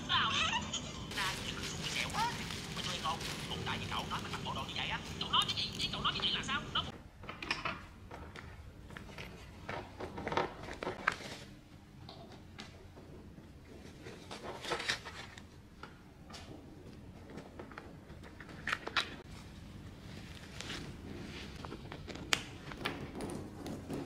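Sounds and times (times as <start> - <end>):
fabric bag rustling: 1.1 - 5.9.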